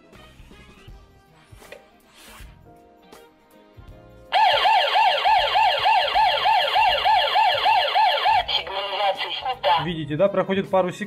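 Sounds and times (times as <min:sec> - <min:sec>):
alarm siren warbling: 0:04.4 - 0:09.8.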